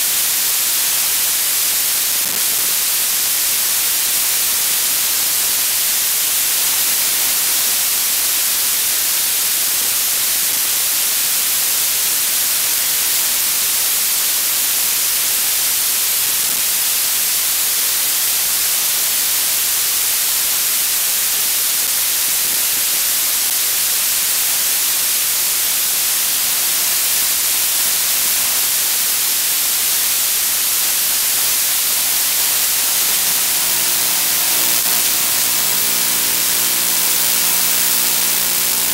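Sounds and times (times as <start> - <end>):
loud static hiss: 0.0 - 38.9
faint steady tones: 32.7 - 38.9.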